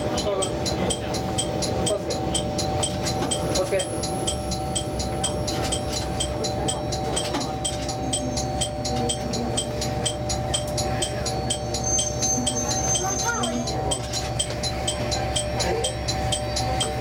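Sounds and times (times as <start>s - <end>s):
diesel engine idling: 0.0s - 17.0s.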